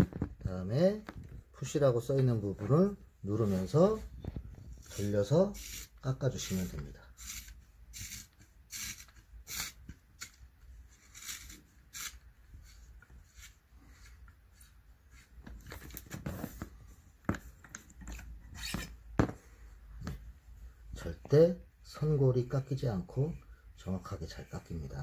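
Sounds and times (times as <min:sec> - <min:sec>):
blade scraping leather: 0:11.0 - 0:14.2.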